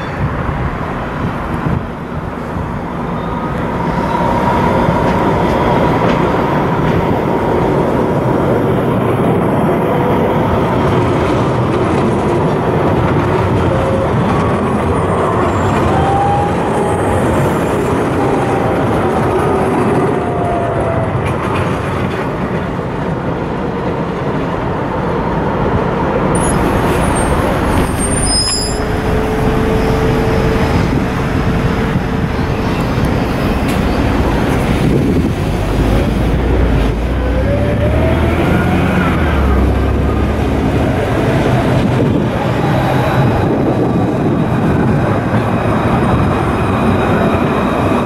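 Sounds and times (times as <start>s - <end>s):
road traffic noise: 0.0s - 48.0s
tram wheels rumbling on rails: 0.0s - 48.0s
tram motor whine: 24.6s - 48.0s.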